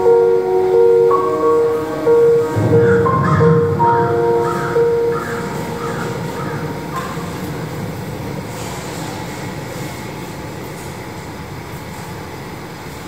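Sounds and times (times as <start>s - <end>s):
sustained musical notes: 0.0s - 8.6s
low rumbling noise: 0.0s - 10.4s.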